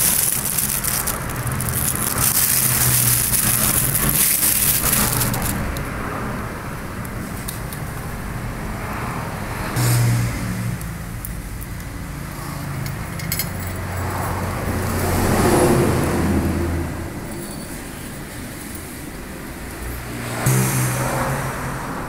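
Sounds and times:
vehicle engine humming: 0:00.0 - 0:17.4.

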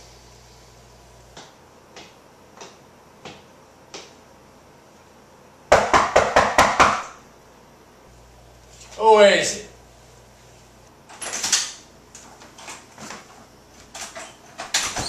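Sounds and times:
knocking on door: 0:05.7 - 0:07.2.

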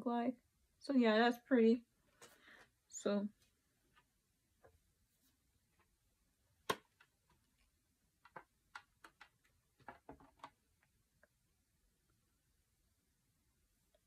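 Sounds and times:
plastic palette clicking: 0:08.2 - 0:10.6.

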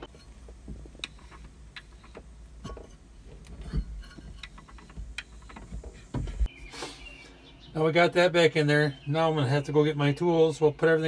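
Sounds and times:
metallic clicks and knocks of shaft: 0:00.0 - 0:06.5
heavy thump: 0:02.6 - 0:06.5.

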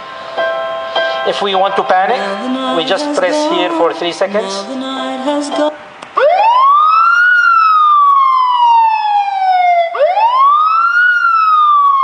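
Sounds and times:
wailing alarm siren: 0:06.2 - 0:12.0.

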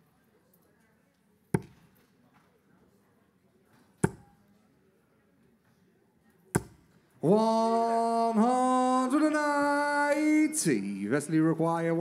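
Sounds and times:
dart hitting dartboard: 0:04.0 - 0:04.3.

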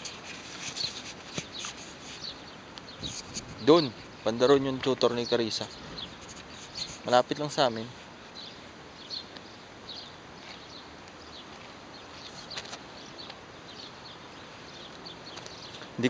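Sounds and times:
faint bird chirps: 0:00.0 - 0:16.0
steady outdoor hiss: 0:00.0 - 0:16.0.

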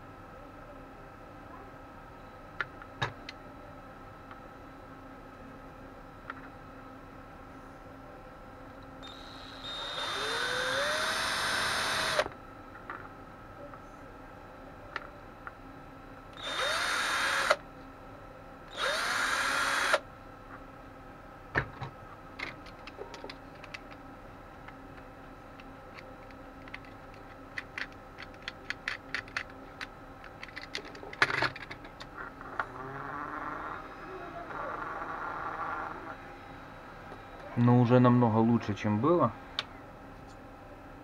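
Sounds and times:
cordless drill spinning: 0:09.0 - 0:12.3, 0:16.4 - 0:17.6, 0:18.7 - 0:20.0.

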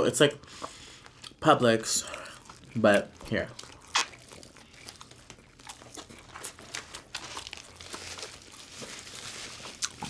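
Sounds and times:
chewing sandwiches: 0:00.5 - 0:10.0
paper wrappers crinkling: 0:02.6 - 0:10.0.

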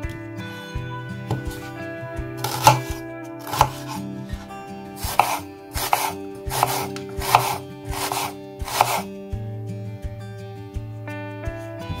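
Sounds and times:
knife knocking on cutting board: 0:01.3 - 0:01.7, 0:02.4 - 0:04.0, 0:05.0 - 0:09.0
knife slicing through onion: 0:01.3 - 0:01.7, 0:02.4 - 0:04.1, 0:05.0 - 0:09.1.

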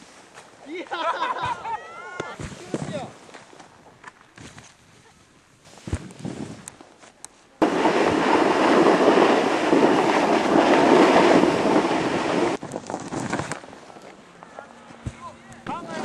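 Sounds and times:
snowboard rushing through powder: 0:07.6 - 0:13.5.

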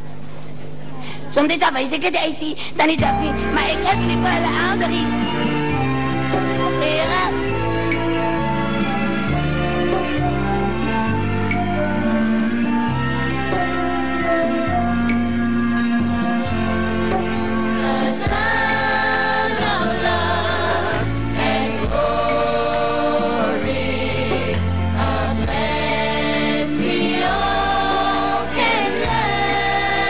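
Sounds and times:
choir singing gospel song: 0:16.4 - 0:30.0.

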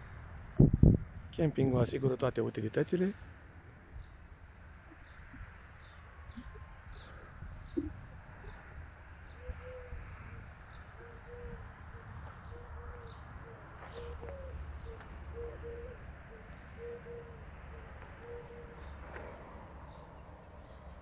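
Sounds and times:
dove cooing: 0:06.4 - 0:08.6, 0:09.3 - 0:19.0.

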